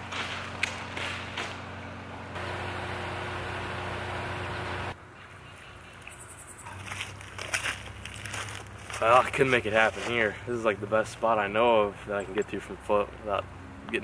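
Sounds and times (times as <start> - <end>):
river-bank ambience: 0.0 - 14.0
traffic rumble under bridge: 0.0 - 14.0
footsteps crunching and squelching: 6.0 - 11.4.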